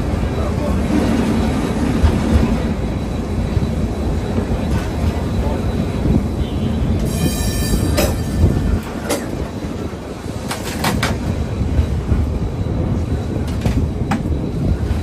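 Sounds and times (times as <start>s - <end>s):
tram low rumble: 0.0s - 15.0s
tram wheels clacking: 0.0s - 15.0s.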